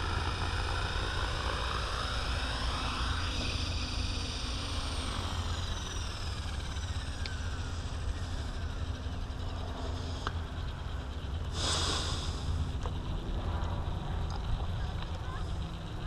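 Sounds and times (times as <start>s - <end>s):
electric motor whine: 0.0s - 16.0s
helicopter rotor blades whirring: 0.0s - 16.0s
burst of hiss: 11.6s - 12.5s.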